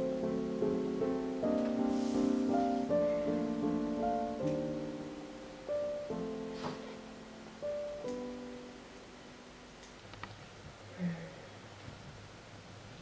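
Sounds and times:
slow piano music: 0.0s - 10.0s.

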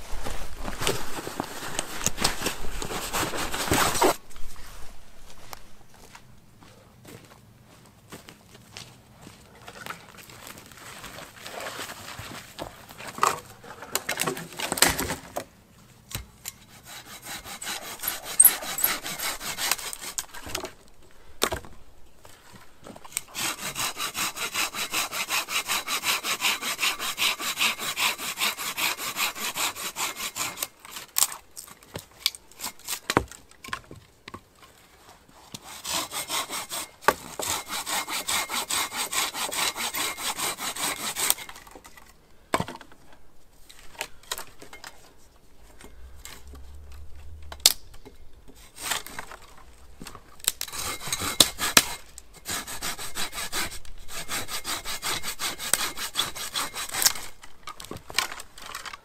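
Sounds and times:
hand saw cutting wood: 2.0s - 4.2s, 16.5s - 20.8s, 23.1s - 31.4s, 32.5s - 33.3s, 35.4s - 42.0s, 48.6s - 58.9s.

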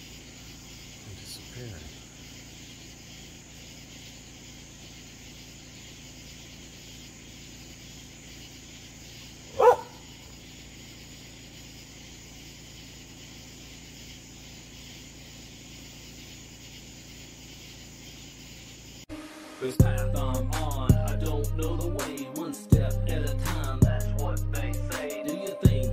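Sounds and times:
dog barking: 9.5s - 10.1s.

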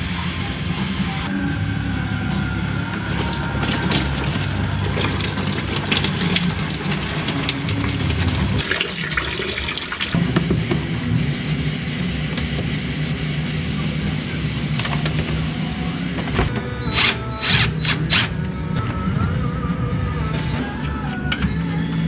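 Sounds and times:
fluid pouring into drain pan: 3.0s - 10.2s.

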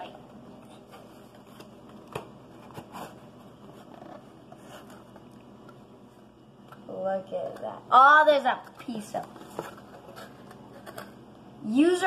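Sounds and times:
cardboard rustling and scraping: 0.7s - 5.3s, 8.8s - 11.2s.

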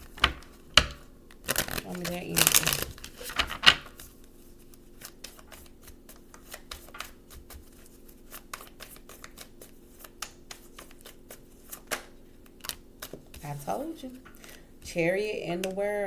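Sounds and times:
cards being shuffled: 0.0s - 13.6s
faint steady hum: 0.0s - 16.0s.

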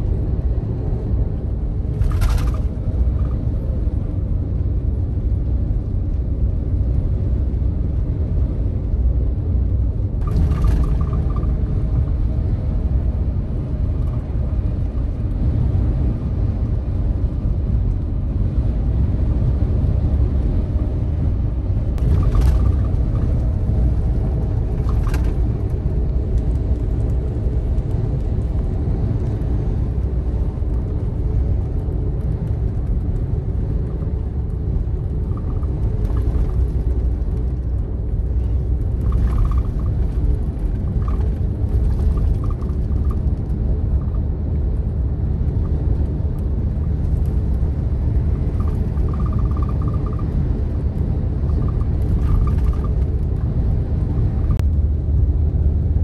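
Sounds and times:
bus engine and road noise: 0.0s - 56.0s
faint ticks and rattles: 22.0s - 44.3s, 45.5s - 53.6s.

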